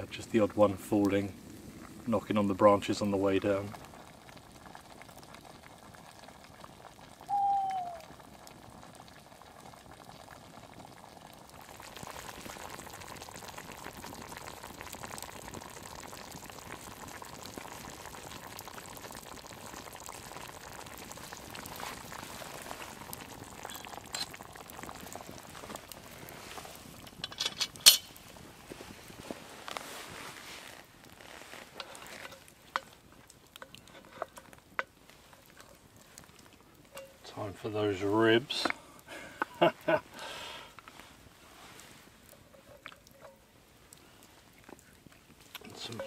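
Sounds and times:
pot bubbling over campfire: 0:00.0 - 0:46.0
short falling call: 0:07.3 - 0:08.1.

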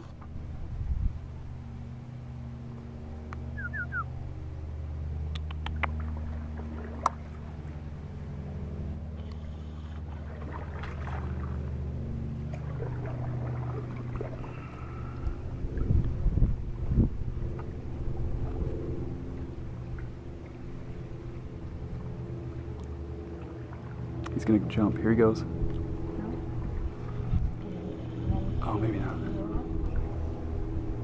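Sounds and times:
low engine hum: 0:00.0 - 0:31.0
bird chirps: 0:03.5 - 0:04.1
sharp clicks: 0:05.3 - 0:06.0.

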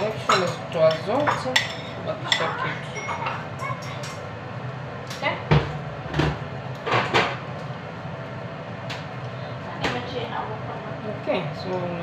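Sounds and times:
metal utensil clinking on cookware: 0:00.0 - 0:04.2.

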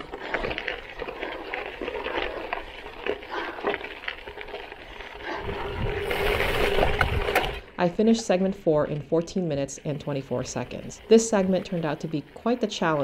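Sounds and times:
bike tyres crunching on gravel: 0:00.0 - 0:08.1, 0:10.0 - 0:13.0.

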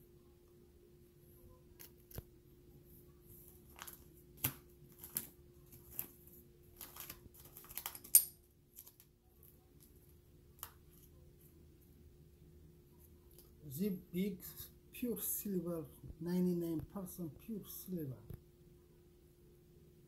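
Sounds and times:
plastic album pages crinkling: 0:03.3 - 0:11.2.

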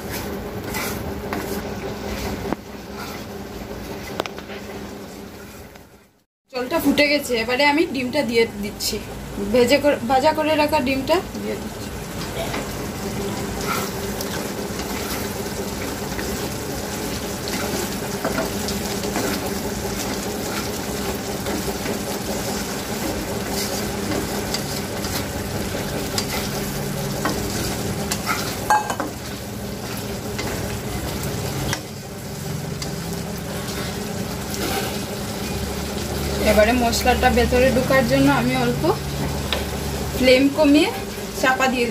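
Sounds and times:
curry bubbling and sizzling: 0:10.9 - 0:41.9.

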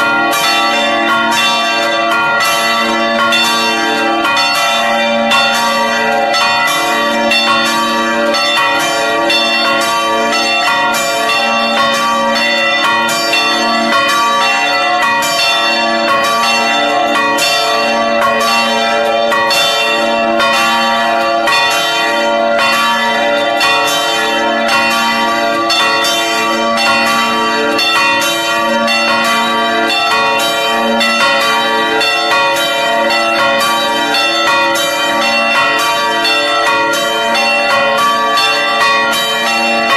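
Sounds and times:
church bells ringing: 0:00.0 - 0:39.9.

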